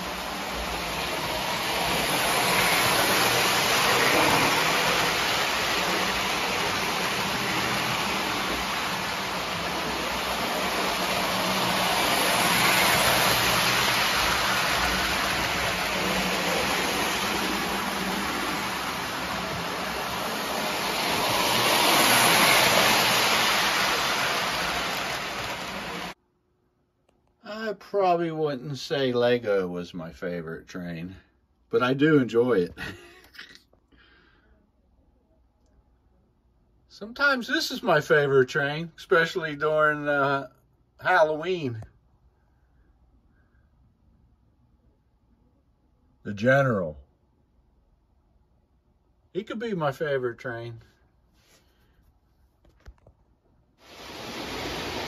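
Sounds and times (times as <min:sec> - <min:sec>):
model train rolling on track: 0:00.0 - 0:26.2.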